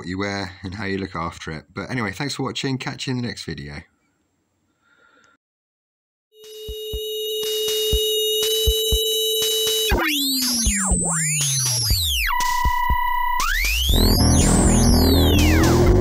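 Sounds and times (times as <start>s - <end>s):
synthesizer music: 6.4s - 16.0s.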